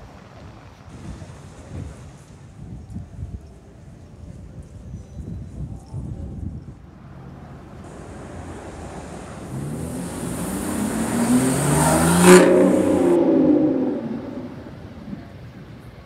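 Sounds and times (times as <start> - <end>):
car engine revving: 7.0 - 15.4.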